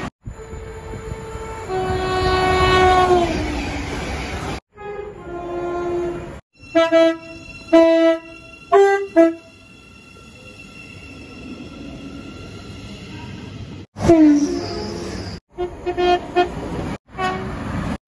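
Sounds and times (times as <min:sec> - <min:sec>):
train horn blasts: 0:00.3 - 0:03.6, 0:04.7 - 0:09.5, 0:14.0 - 0:17.6.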